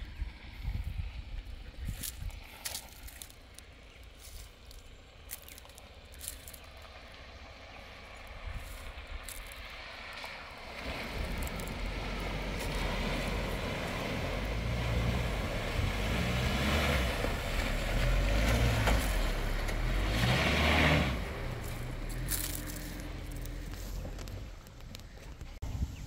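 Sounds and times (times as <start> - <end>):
car engine running: 0.2 - 25.6
water splashing around wheels: 0.3 - 25.6.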